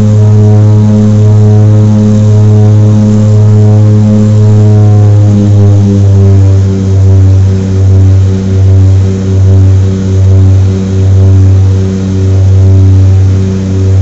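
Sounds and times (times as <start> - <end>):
propeller engines droning in cabin: 0.0 - 14.0.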